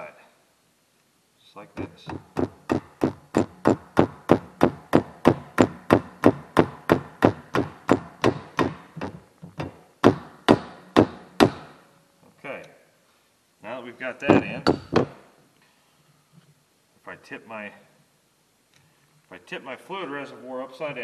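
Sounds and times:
hammer tapping metal: 0:01.8 - 0:11.8, 0:14.3 - 0:15.2.

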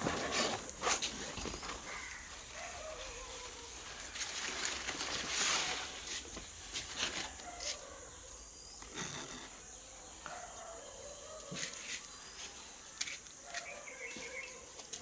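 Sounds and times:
leaves rustling: 0:00.0 - 0:08.3
outdoor ambience: 0:00.0 - 0:15.0.

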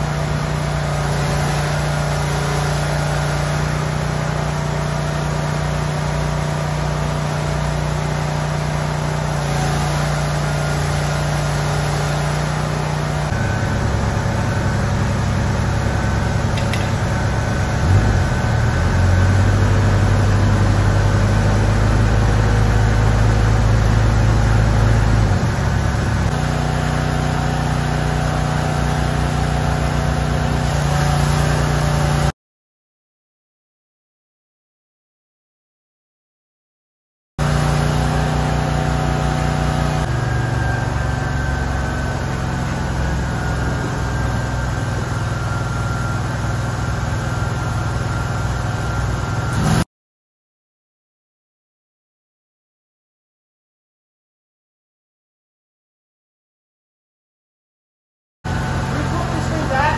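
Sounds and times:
engine running: 0:00.0 - 0:32.3, 0:37.4 - 0:49.8, 0:58.5 - 0:59.9.

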